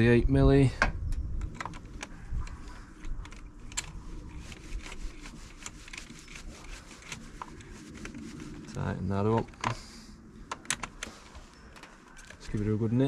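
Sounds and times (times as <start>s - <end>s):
metal clicks and taps: 1.4s - 3.9s.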